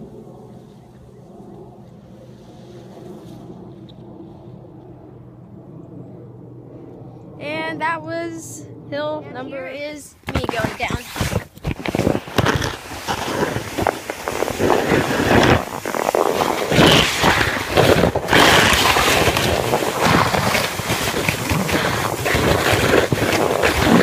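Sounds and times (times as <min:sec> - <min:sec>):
wind buffeting microphone: 0:00.0 - 0:24.0
sled scraping over snow: 0:10.3 - 0:24.0.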